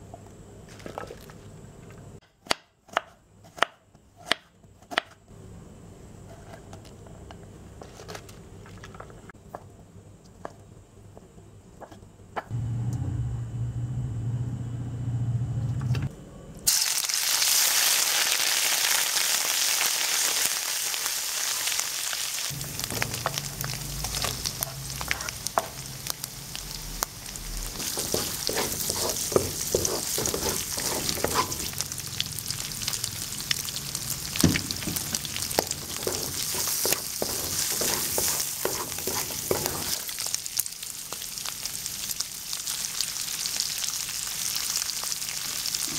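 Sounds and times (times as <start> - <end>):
food sizzling in hot oil: 16.7 - 45.9
wooden spatula scraping wok: 22.8 - 25.9, 27.5 - 31.8, 34.6 - 40.2.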